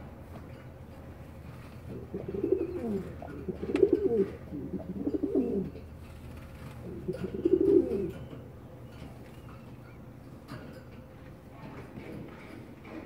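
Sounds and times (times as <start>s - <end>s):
pigeon cooing: 1.9s - 8.4s.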